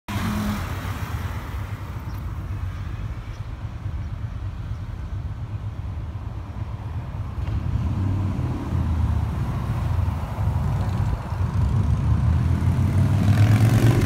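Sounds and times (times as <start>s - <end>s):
low traffic rumble: 0.1s - 14.0s
vehicle passing: 7.3s - 14.0s.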